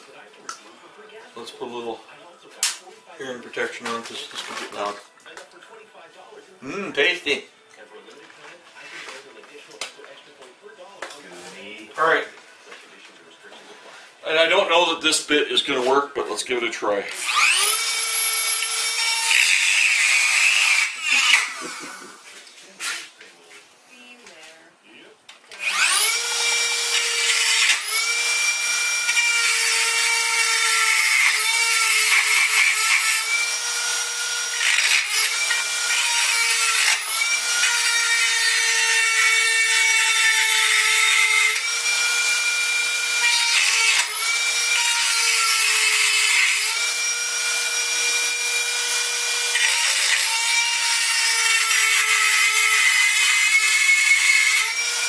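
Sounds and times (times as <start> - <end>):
die grinder grinding metal: 17.1 - 22.1, 25.5 - 55.0.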